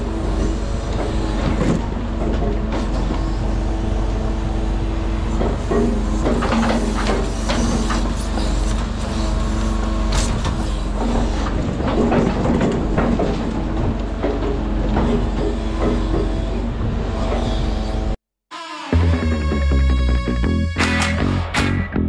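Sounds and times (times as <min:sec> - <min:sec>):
diesel truck engine running: 0:00.0 - 0:18.2
rattles and knocks: 0:05.3 - 0:09.0, 0:10.1 - 0:17.8.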